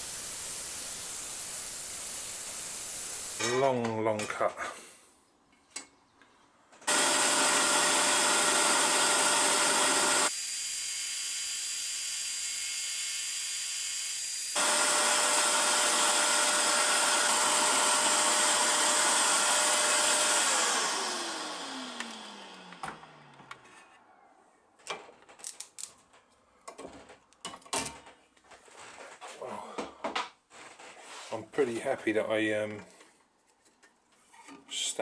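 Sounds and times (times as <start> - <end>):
scroll saw cutting wood: 0.0 - 3.4, 6.9 - 23.8.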